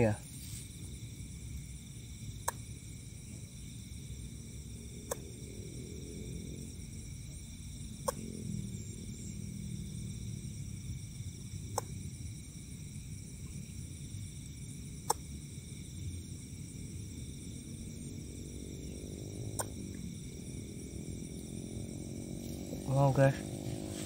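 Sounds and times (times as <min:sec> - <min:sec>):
insects trilling: 0:00.0 - 0:24.0
low rumble: 0:15.7 - 0:24.0.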